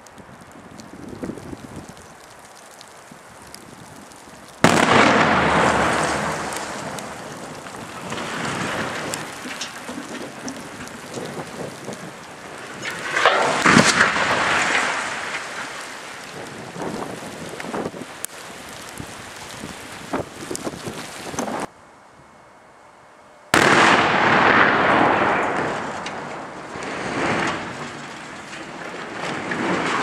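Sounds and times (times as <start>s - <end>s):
loud explosive blast: 4.6s - 7.1s, 23.6s - 26.3s
chimney crashing to ground: 13.0s - 15.3s.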